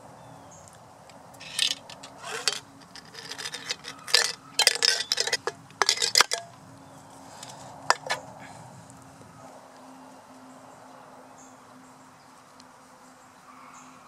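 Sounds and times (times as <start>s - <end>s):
pellet clinking inside metal can: 1.4s - 6.5s, 7.3s - 8.2s.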